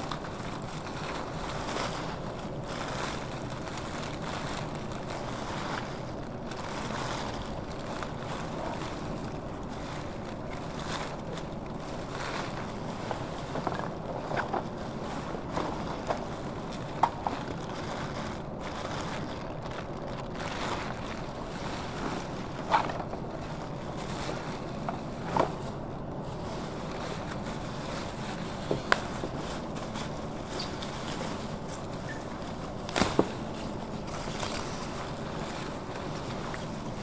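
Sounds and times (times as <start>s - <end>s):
plastic bin bags rustling: 0.0s - 37.0s
sharp cracks or knocks: 32.9s - 33.4s.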